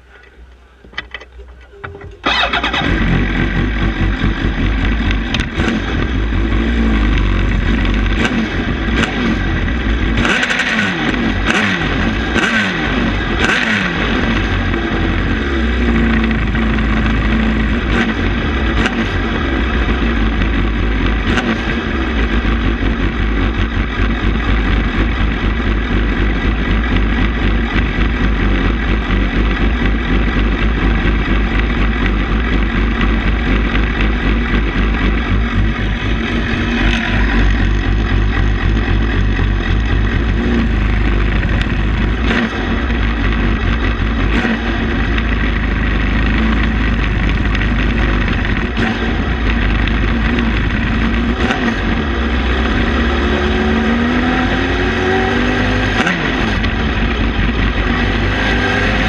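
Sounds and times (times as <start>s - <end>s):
engine exhaust cracks: 0.2s - 9.2s, 26.2s - 52.1s
motorcycle engine revving and idling: 1.2s - 59.0s.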